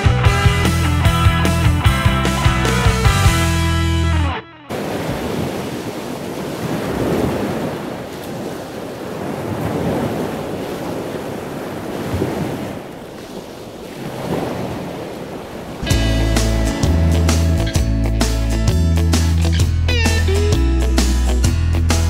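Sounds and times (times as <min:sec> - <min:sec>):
sea surf washing onto beach: 0:04.7 - 0:17.7
wind buffeting microphone: 0:04.8 - 0:16.7.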